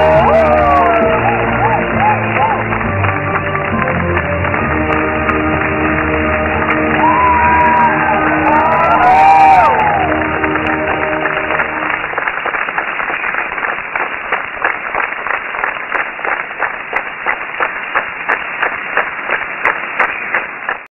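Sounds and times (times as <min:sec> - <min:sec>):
music: 0:00.0 - 0:12.2
audience applauding: 0:00.0 - 0:20.9
rhythmic clapping in unison: 0:00.0 - 0:20.9.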